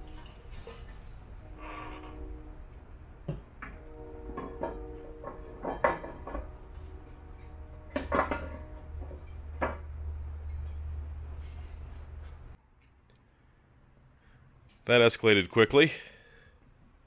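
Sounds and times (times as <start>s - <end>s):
steady low hum: 0.0s - 14.8s
metal part knocking and clunking: 3.3s - 6.7s, 7.8s - 10.8s.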